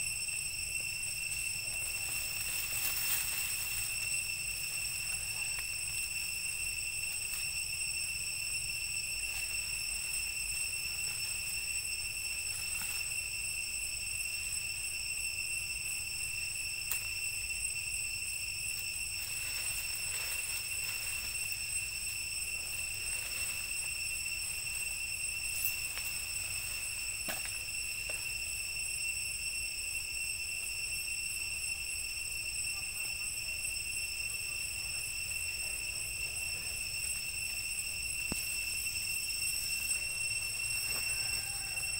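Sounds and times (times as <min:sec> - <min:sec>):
high-pitched insect drone: 0:00.0 - 0:41.9.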